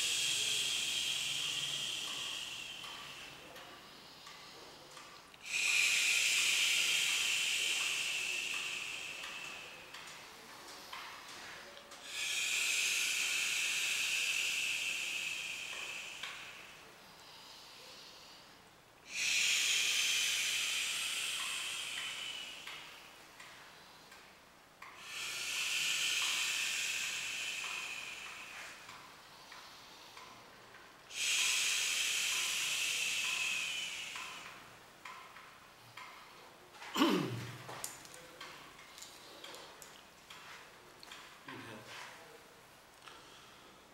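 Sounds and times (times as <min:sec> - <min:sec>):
hissing out-breaths: 0:00.0 - 0:23.1, 0:25.0 - 0:30.5, 0:31.1 - 0:34.7.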